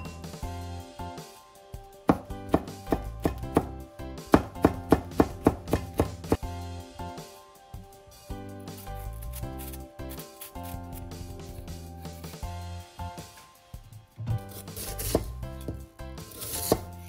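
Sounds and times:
knife chopping on wooden board: 2.1 - 6.4, 14.4 - 17.0.

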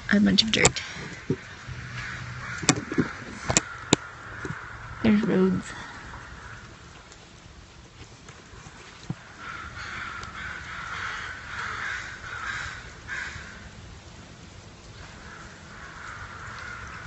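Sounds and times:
crows cawing: 0.8 - 5.1, 5.8 - 7.0, 9.2 - 13.8, 15.0 - 17.0.

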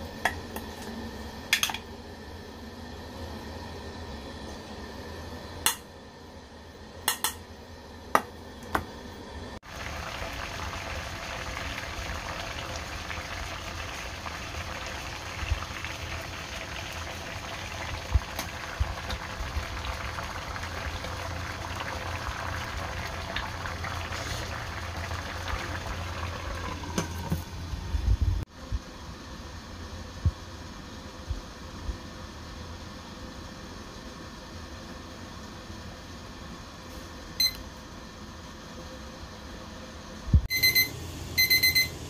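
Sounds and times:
water boiling in a pot: 9.5 - 42.0.

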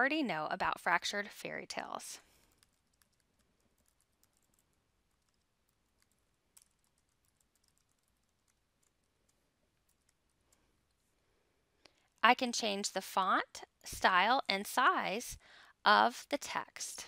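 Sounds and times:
keyboard typing: 2.3 - 11.1.

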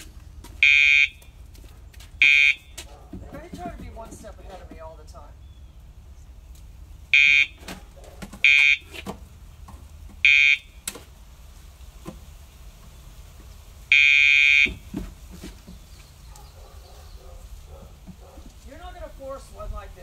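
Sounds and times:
electronic pager buzzing: 7.2 - 7.6, 13.9 - 14.7.

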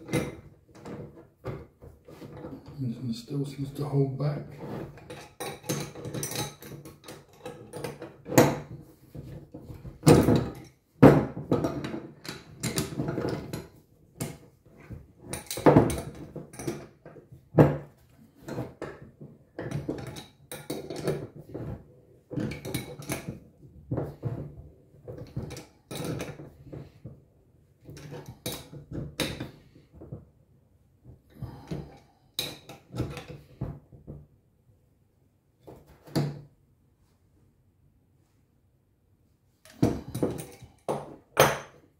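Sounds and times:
metal pipe fittings clinking: 5.0 - 8.7, 39.7 - 41.8.

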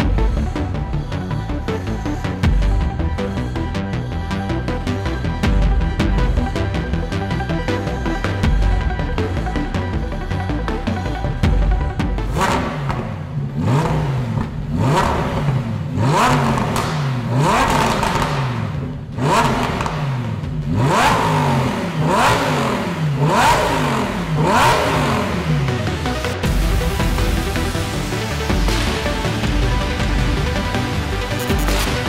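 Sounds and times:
car engine revving: 0.0 - 32.0.

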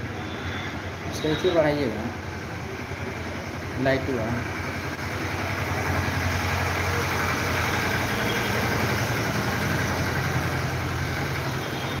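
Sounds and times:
machine humming: 4.4 - 12.0.

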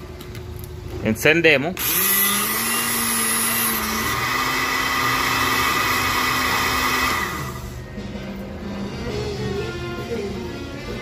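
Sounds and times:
blender motor running down: 1.8 - 7.8.

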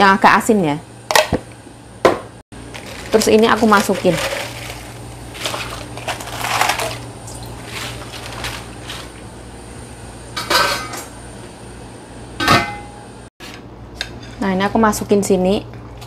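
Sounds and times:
steady low hum: 0.0 - 16.0
metal pot lid clanking: 10.4 - 11.0, 12.4 - 13.0.

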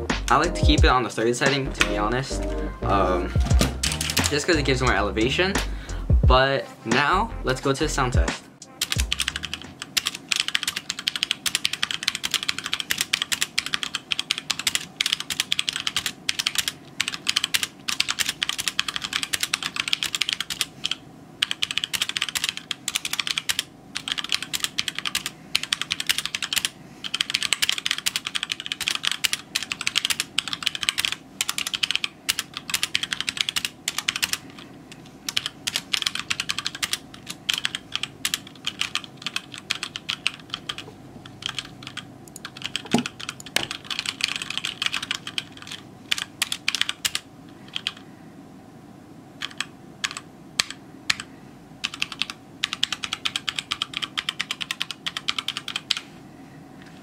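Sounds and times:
heavier thump: 3.4 - 3.9
mechanical keyboard typing: 3.5 - 4.5, 8.8 - 34.7, 35.3 - 48.0, 49.4 - 56.0.

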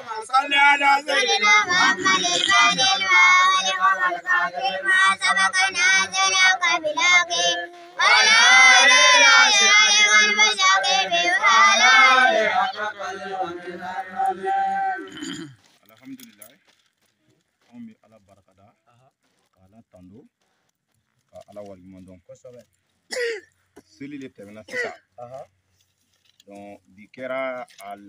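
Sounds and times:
high-pitched voice singing: 0.8 - 12.9.

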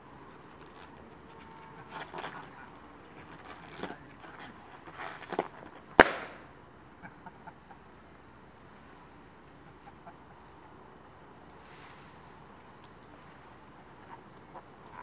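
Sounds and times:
balloon popping: 6.0 - 6.4.

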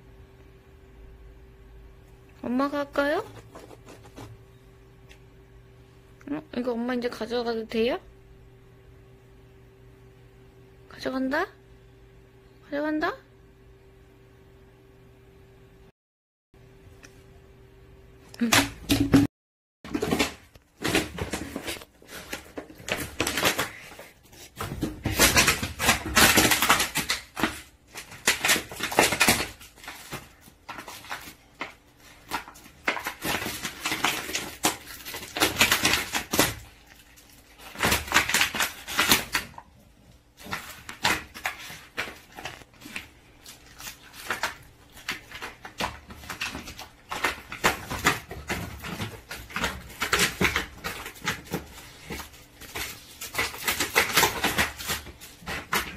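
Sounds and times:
dog chewing plastic bottle: 32.2 - 39.6, 43.4 - 55.9.

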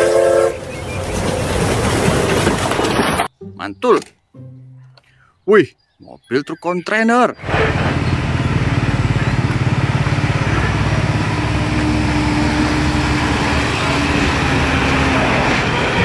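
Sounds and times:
truck diesel engine running: 7.4 - 16.0.

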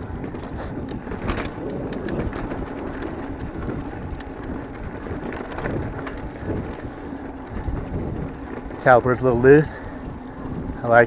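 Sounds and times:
bike clicks and rattles: 0.0 - 11.0
tyres rumbling on dirt: 0.0 - 11.0
wind buffeting microphone: 0.0 - 11.0.

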